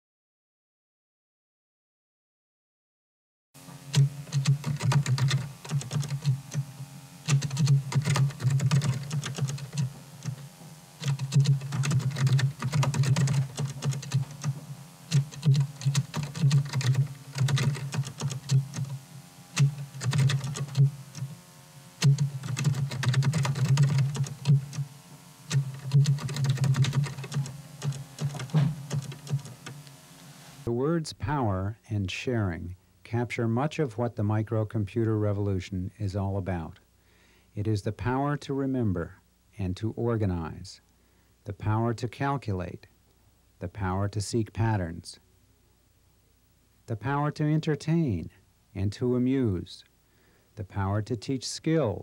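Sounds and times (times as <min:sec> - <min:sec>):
low hum: 0:03.6 - 0:30.8
computer keyboard typing: 0:04.0 - 0:06.6, 0:07.2 - 0:10.4, 0:11.0 - 0:19.0, 0:19.6 - 0:21.3, 0:22.0 - 0:24.8, 0:25.5 - 0:29.8.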